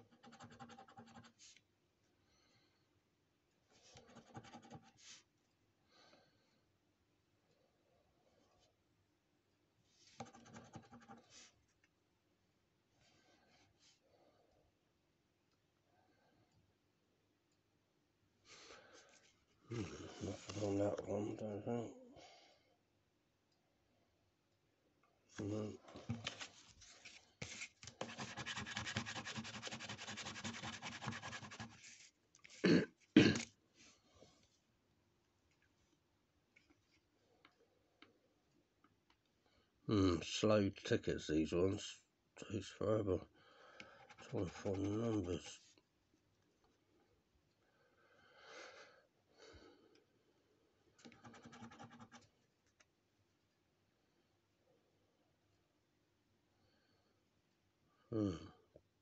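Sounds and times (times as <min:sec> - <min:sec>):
scratchcard being scratched: 0:28.0 - 0:31.8.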